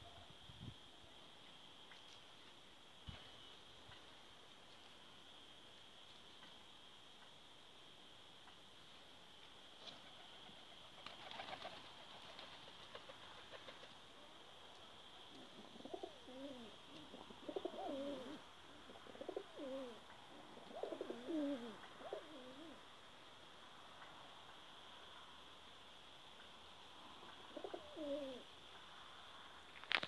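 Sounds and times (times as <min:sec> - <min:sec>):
pigeons cooing: 0:15.3 - 0:22.8, 0:27.3 - 0:28.5.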